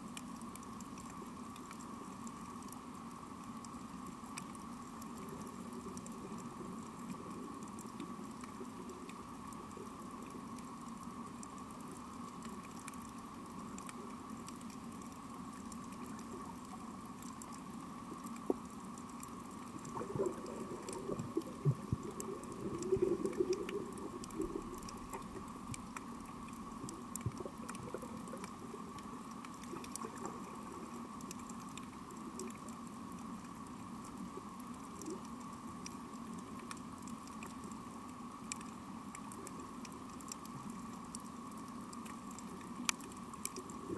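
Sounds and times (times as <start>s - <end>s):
steady underwater hum: 0.0s - 43.9s
burbling water: 19.6s - 31.6s.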